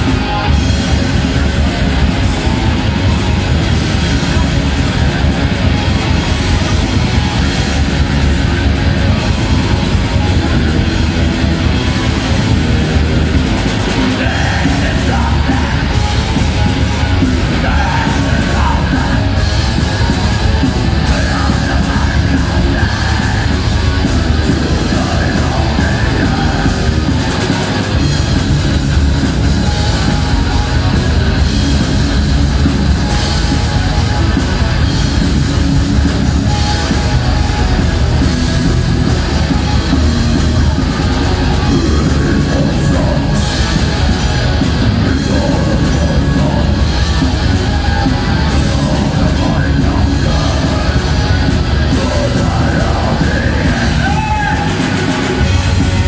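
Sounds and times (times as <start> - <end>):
bass guitar: 0.0 - 56.0
distorted electric guitars: 0.0 - 56.0
drums: 0.0 - 56.0
person singing and yelling: 8.7 - 28.0, 36.4 - 56.0.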